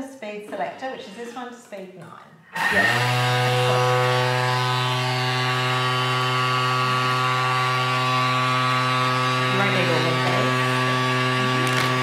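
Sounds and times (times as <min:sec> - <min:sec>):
high-speed motor whine: 0:02.5 - 0:12.0.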